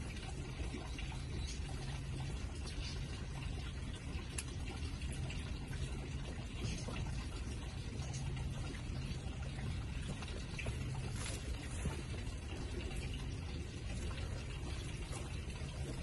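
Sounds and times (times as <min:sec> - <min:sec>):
low hum: 0:00.0 - 0:16.0
faint clicks: 0:04.2 - 0:04.8.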